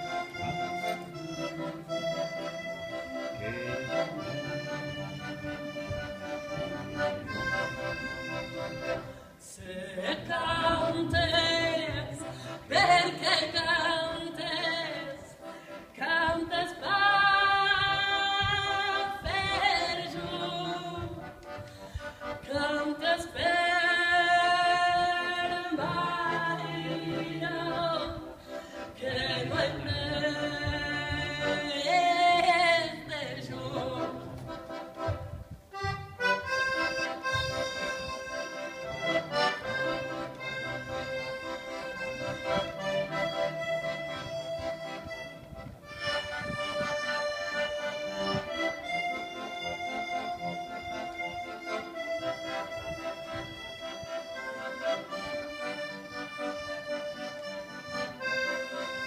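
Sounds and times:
button accordion playing: 0:00.0 - 0:59.0
woman singing: 0:09.4 - 0:15.3, 0:16.0 - 0:21.2, 0:22.4 - 0:28.4, 0:29.0 - 0:34.3.

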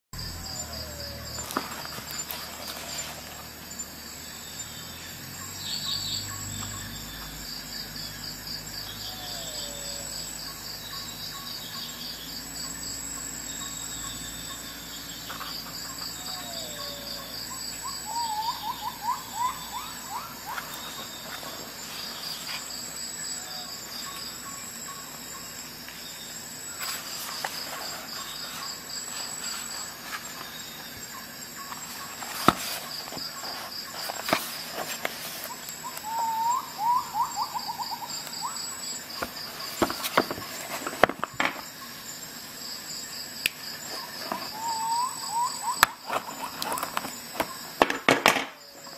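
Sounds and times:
crickets chirping: 0:00.2 - 0:48.9.

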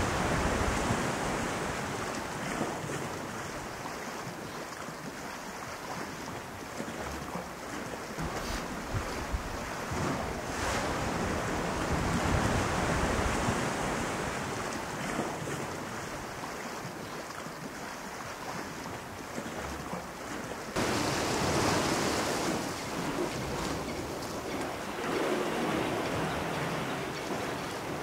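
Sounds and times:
ocean waves washing in: 0:00.0 - 0:06.6, 0:07.4 - 0:28.0
wind: 0:00.0 - 0:28.0.

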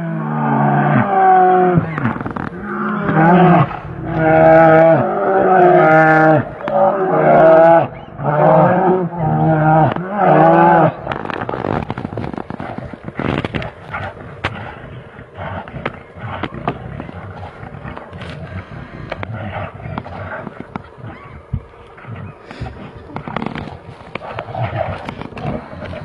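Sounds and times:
bear roar: 0:00.0 - 0:26.0
bears scuffling: 0:01.7 - 0:26.0.

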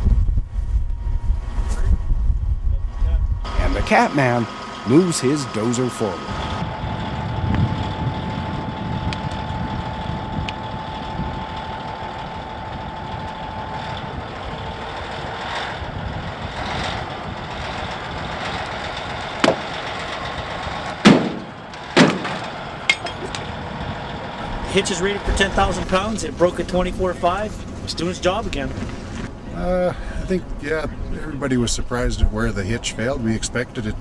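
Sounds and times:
bulldozer diesel engine running: 0:03.4 - 0:34.0
sharp bangs of metal tearing: 0:19.4 - 0:23.2.

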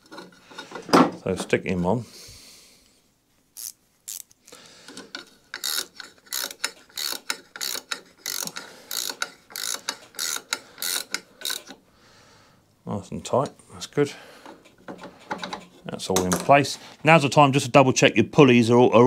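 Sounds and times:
ratchet wrench clicking: 0:03.6 - 0:04.3, 0:05.5 - 0:11.8.

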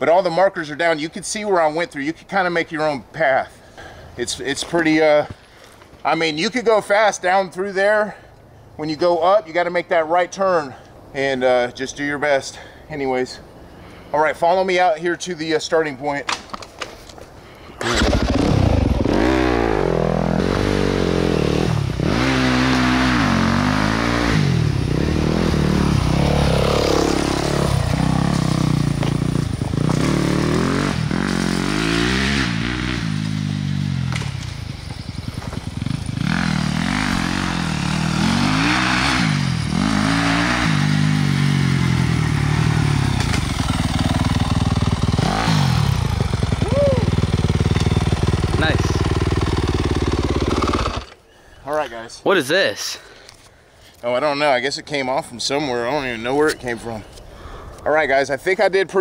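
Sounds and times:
dirt bike engine revving: 0:17.8 - 0:51.2.

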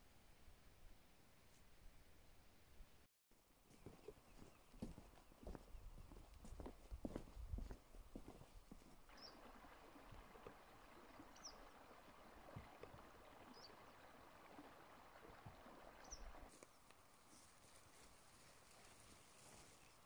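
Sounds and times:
footsteps on wooden boards: 0:03.7 - 0:09.0
stream trickling: 0:04.3 - 0:20.0.

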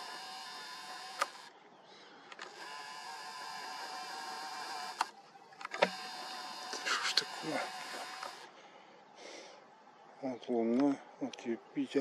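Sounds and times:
zoom lens motor whining: 0:00.0 - 0:01.6, 0:02.3 - 0:08.5
sharp clicks: 0:01.2 - 0:01.5.

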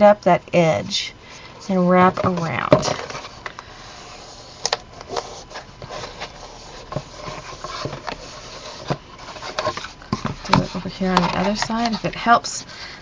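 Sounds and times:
paper rubbing and rustling: 0:02.9 - 0:12.3.

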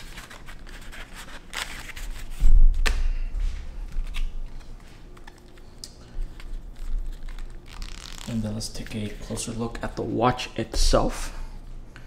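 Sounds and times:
stiff paper rustling and clicking: 0:03.9 - 0:09.2.

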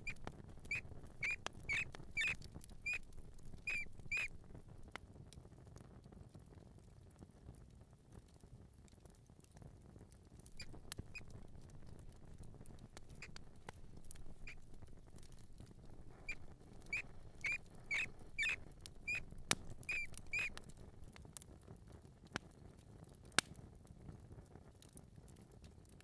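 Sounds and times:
mouse squeaking: 0:00.0 - 0:04.5, 0:10.5 - 0:20.9
mouse feet pattering: 0:00.0 - 0:04.9, 0:10.4 - 0:21.2.

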